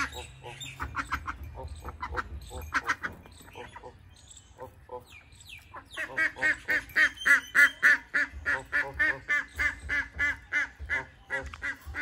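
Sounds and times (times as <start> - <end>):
ducks quacking: 0.0 - 12.0.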